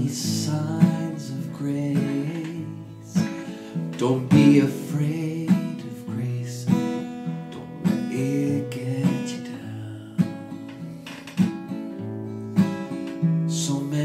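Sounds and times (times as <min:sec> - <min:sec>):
acoustic guitar strumming: 0:00.0 - 0:14.0.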